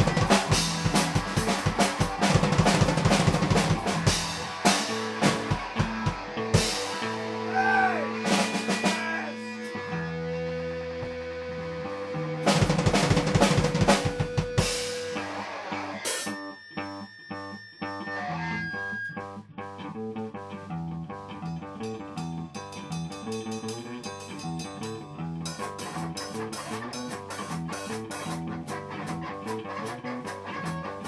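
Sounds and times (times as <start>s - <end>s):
drum kit playing busy beats: 0.0s - 9.9s, 12.3s - 17.0s, 21.6s - 31.0s.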